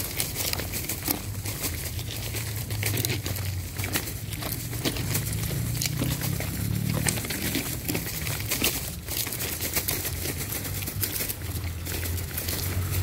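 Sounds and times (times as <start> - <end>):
footsteps crunching on gravel and leaves: 0.0 - 13.0
low steady rumble: 0.0 - 13.0.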